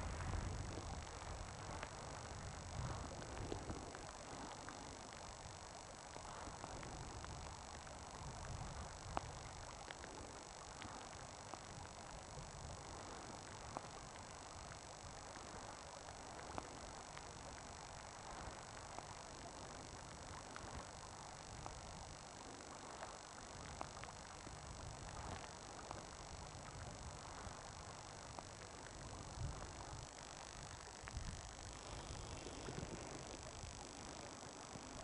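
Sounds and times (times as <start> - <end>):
steady hiss: 0.0 - 35.0
wind rumbling on microphone: 0.0 - 35.0
light ticks: 9.1 - 11.7.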